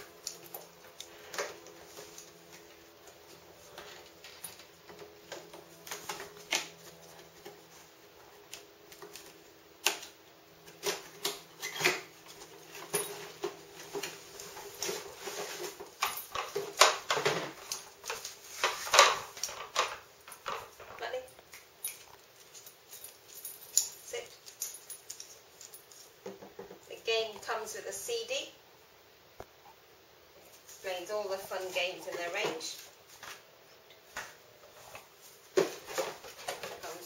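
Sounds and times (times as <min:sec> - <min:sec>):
cardboard box and plastic rustling: 0:11.9 - 0:19.8, 0:35.2 - 0:37.0.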